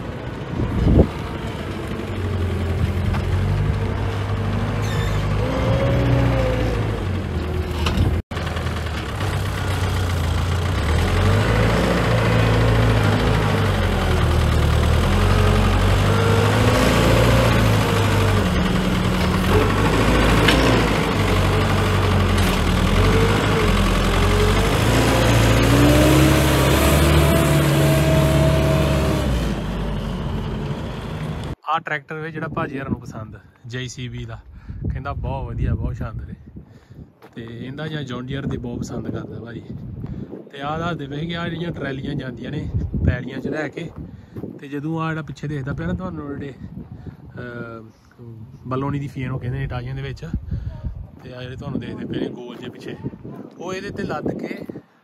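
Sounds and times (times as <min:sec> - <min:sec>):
diesel engine revving: 0:00.0 - 0:31.6.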